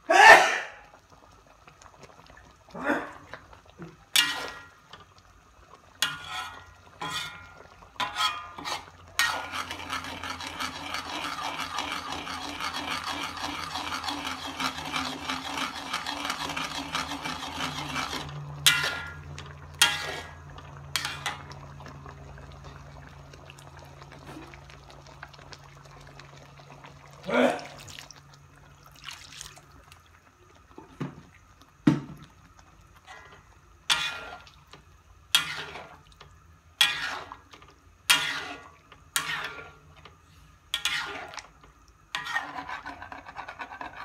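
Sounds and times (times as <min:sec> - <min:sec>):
ladle scraping and stirring sauce: 0:06.0 - 0:26.3, 0:32.5 - 0:44.0.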